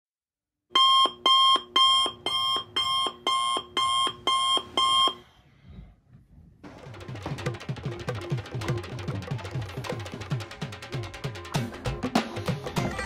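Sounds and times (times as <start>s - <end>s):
electronic alarm beeping: 0.7s - 5.2s.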